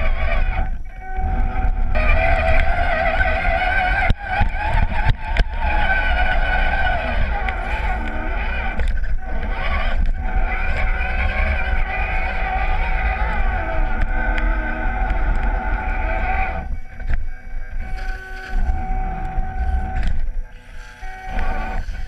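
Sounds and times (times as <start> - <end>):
low rumble of chassis shaking: 0.0 - 22.0
toy truck motor and gears whining: 0.0 - 22.0.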